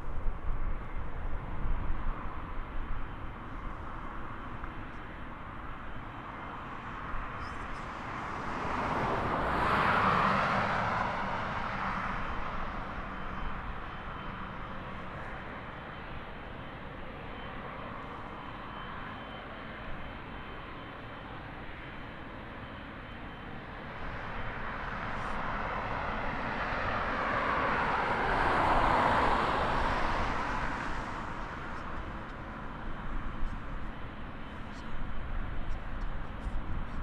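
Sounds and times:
faint thin whine: 0:00.0 - 0:37.0
jet engines rushing: 0:07.8 - 0:36.9.

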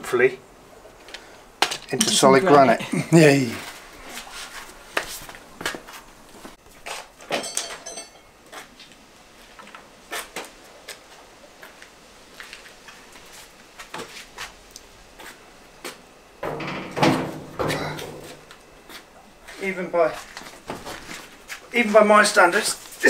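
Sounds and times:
handling knocks and clatter: 0:07.3 - 0:08.2, 0:16.4 - 0:18.6
short metallic clink: 0:07.3 - 0:08.3.

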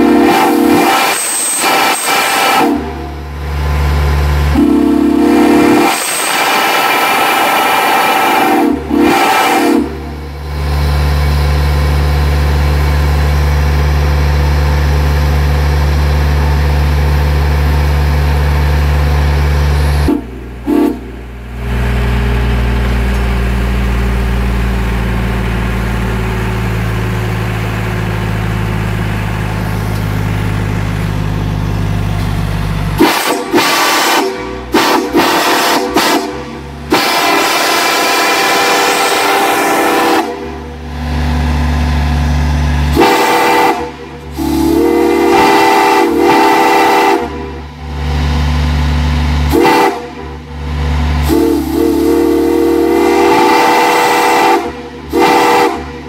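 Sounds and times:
steam whistle blasts: 0:00.0 - 0:03.3, 0:04.5 - 0:10.3, 0:20.0 - 0:21.2, 0:33.0 - 0:40.6, 0:42.9 - 0:47.6, 0:49.5 - 0:50.4, 0:51.2 - 0:56.0.

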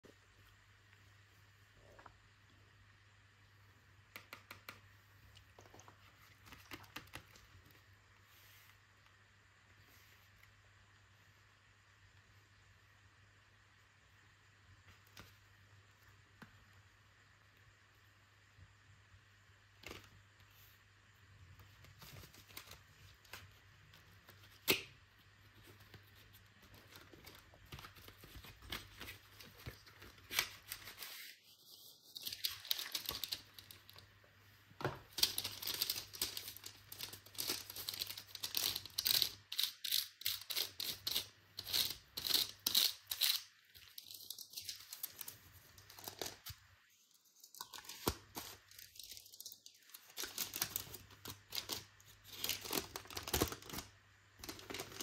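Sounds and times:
foil wrapper crinkling: 0:35.1 - 0:46.5, 0:47.4 - 0:55.0.

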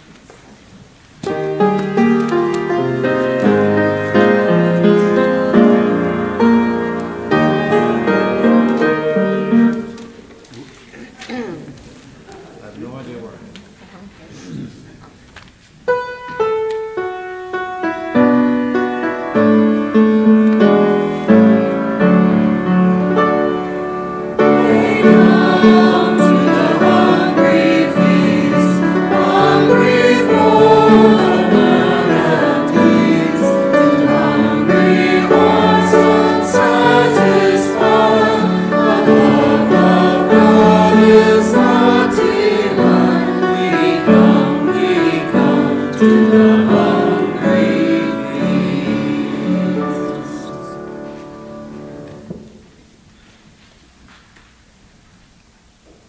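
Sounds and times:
group singing a hymn: 0:01.3 - 0:10.2, 0:18.7 - 0:52.3
keyboard playing: 0:15.9 - 0:52.2.

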